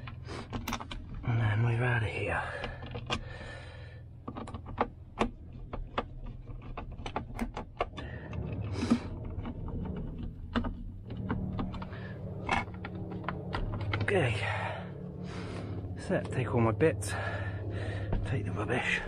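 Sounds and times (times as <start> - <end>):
plastic fittings clicking and rattling: 0.0 - 1.2, 2.6 - 3.5, 4.2 - 14.1
steady low hum: 0.0 - 19.0.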